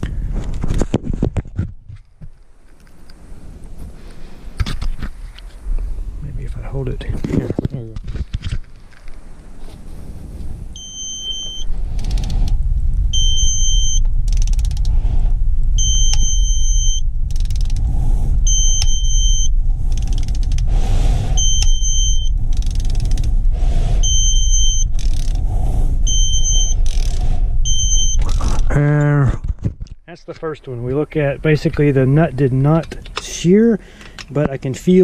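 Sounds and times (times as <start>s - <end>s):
loud low rumble: 9.3s - 32.8s
torque wrench two-tone beeps: 10.8s - 11.7s, 13.1s - 14.0s, 15.8s - 17.0s, 18.5s - 19.5s, 21.4s - 22.4s, 24.0s - 25.0s, 26.1s - 27.0s, 27.6s - 28.4s.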